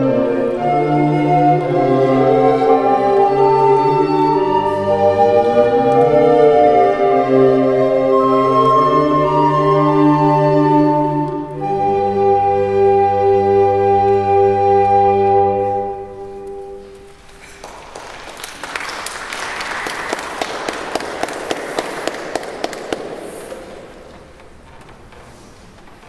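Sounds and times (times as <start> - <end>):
recorder ensemble chord: 0.0 - 17.0
audience clapping: 16.9 - 24.3.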